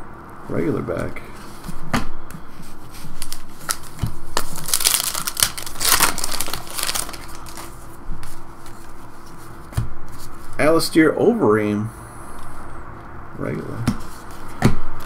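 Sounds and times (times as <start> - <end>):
foil wrapper crinkling: 2.7 - 9.4.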